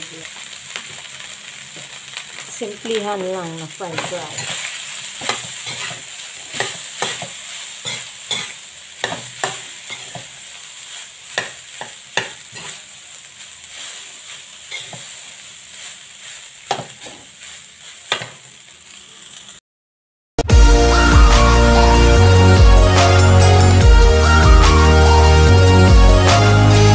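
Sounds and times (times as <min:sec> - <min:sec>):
rice sizzling in a wok: 0:00.0 - 0:19.6
metal spatula scraping a wok: 0:03.9 - 0:12.9, 0:13.6 - 0:18.5.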